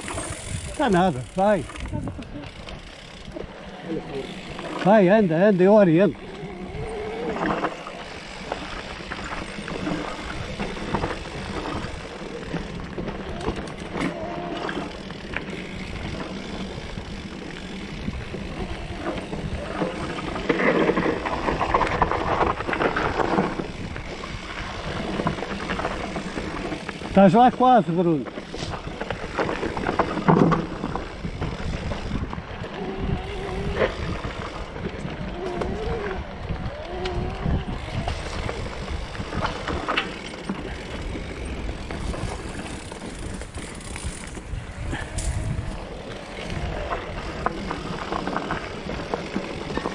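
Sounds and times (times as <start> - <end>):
wind buffeting microphone: 0.0 - 27.4, 28.4 - 49.9
bike clattering over bumps: 0.0 - 49.9
bike tyres rolling on dirt: 0.0 - 49.9
wind on microphone: 28.6 - 49.9.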